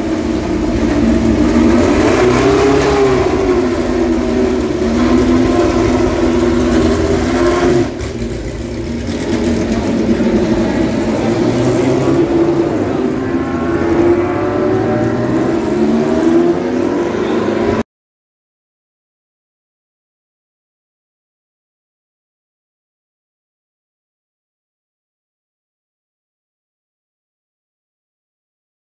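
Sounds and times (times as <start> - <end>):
racing car engines at high revs: 0.0 - 17.8.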